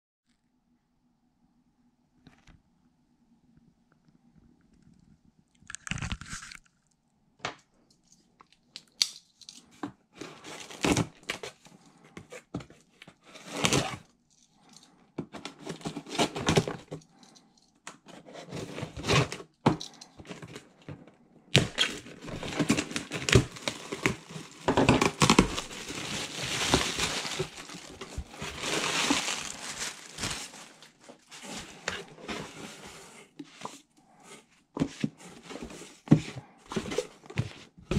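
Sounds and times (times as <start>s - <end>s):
tape tearing: 5.7s - 6.7s, 21.5s - 31.9s
cardboard flaps scraping: 21.6s - 33.3s.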